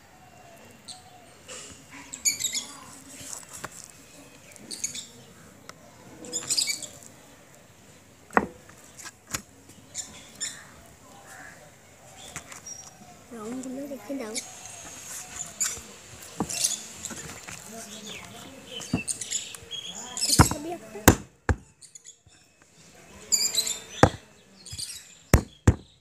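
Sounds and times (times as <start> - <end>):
small bird chirping: 2.0 - 3.4, 6.2 - 7.1, 17.9 - 20.7, 23.2 - 26.0
sharp knocks: 20.4 - 21.7, 24.0 - 24.2, 25.3 - 26.0.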